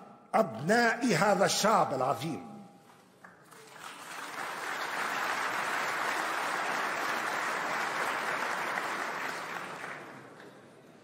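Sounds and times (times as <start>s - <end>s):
audience applauding: 3.4s - 10.7s.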